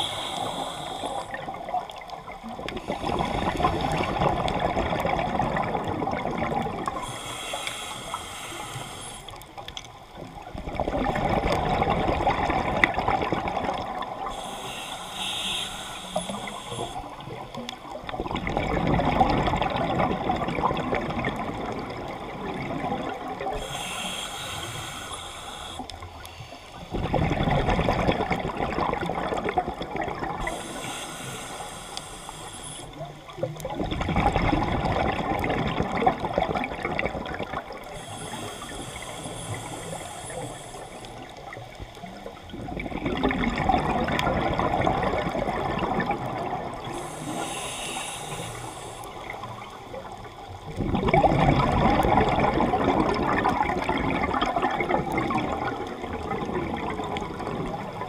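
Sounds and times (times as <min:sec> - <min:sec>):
regulator hissing inhalation: 0:00.0 - 0:01.6, 0:06.9 - 0:09.4, 0:14.2 - 0:17.3, 0:23.5 - 0:26.9, 0:30.4 - 0:33.0, 0:37.9 - 0:41.3, 0:46.9 - 0:49.4
bubbles from exhalation underwater: 0:01.3 - 0:07.0, 0:10.6 - 0:14.3, 0:18.2 - 0:23.6, 0:26.9 - 0:30.5, 0:33.4 - 0:37.9, 0:42.5 - 0:47.0, 0:50.7 - 0:58.0.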